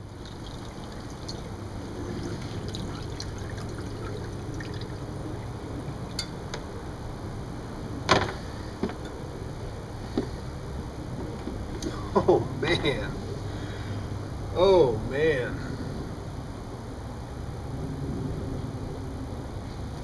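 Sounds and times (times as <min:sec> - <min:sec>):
water trickling and dripping: 0:00.0 - 0:06.4.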